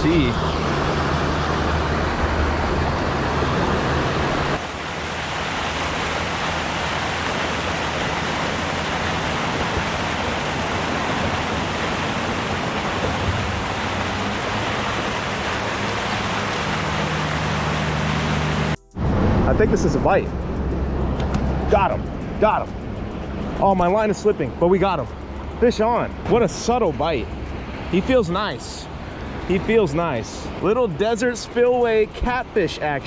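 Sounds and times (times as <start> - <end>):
water pouring over spillway: 4.3 - 18.8.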